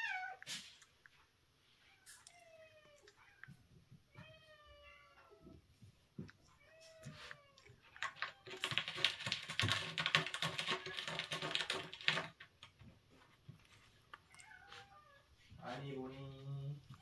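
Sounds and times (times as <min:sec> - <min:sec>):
cat chewing wet food: 0:07.6 - 0:12.8.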